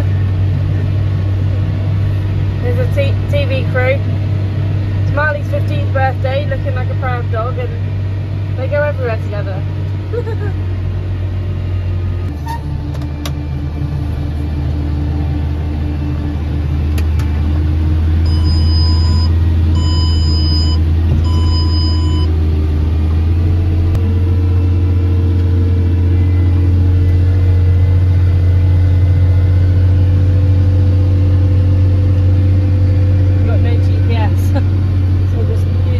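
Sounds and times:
tractor engine drone: 0.0 - 35.9
short electronic beeps: 18.3 - 22.3.

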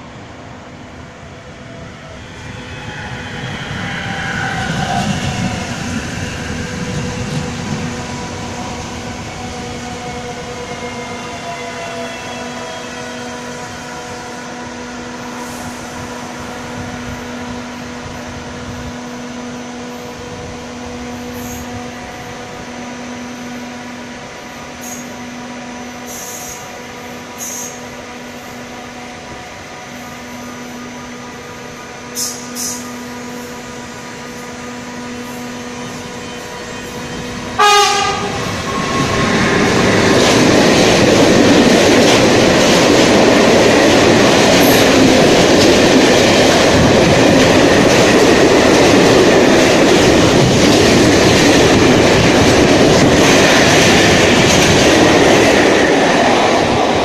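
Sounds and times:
electric train braking whine: 0.0 - 50.7
standing train hum: 0.0 - 57.0.

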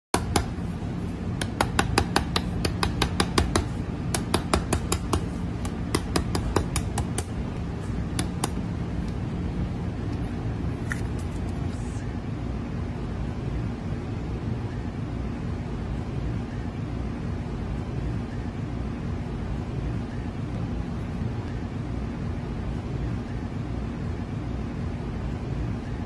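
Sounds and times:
knife tapping on eggshell: 1.4 - 7.3.

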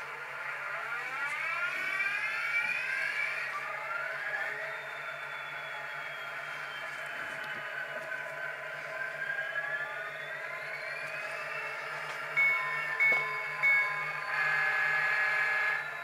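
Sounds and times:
model diesel engine drone: 0.0 - 16.0
locomotive horn toots: 14.3 - 15.8.

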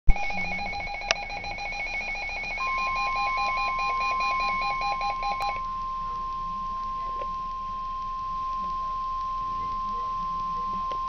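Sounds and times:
radio click: 0.1 - 1.6
rapid warbling electronic beeps: 0.1 - 5.6
steady warning tone: 0.1 - 11.0.

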